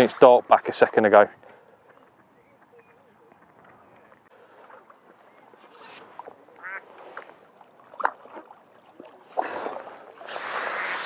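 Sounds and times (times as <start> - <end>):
duck quacking: 6.6 - 6.8.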